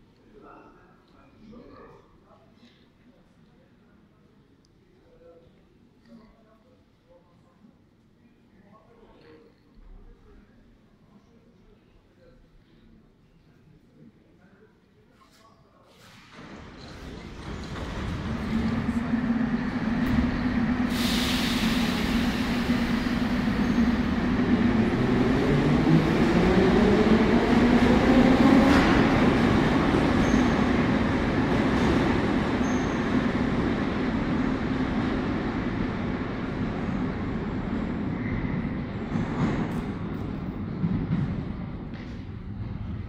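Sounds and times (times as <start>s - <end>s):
metro train motors whining: 16.4s - 39.3s
air hiss: 20.7s - 23.8s.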